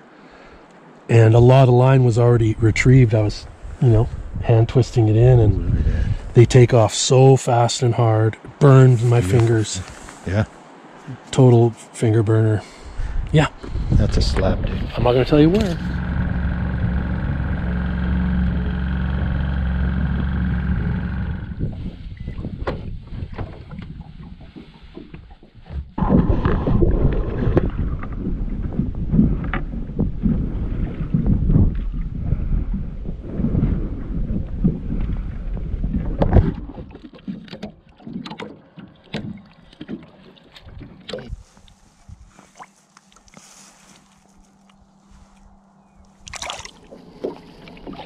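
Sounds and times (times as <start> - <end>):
wind rumbling on microphone: 1.2 - 6.9, 12.4 - 38.3, 40.5 - 42.6
water lapping: 8.0 - 48.0
small boat motor humming: 14.2 - 24.4, 38.6 - 48.0
water splashing and dripping: 36.0 - 41.8, 46.2 - 48.0.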